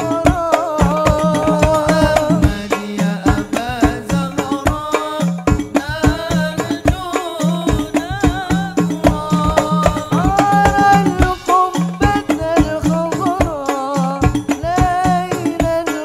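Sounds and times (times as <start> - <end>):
hand-struck frame drums: 0.0 - 16.0
men singing into microphones: 0.0 - 16.0.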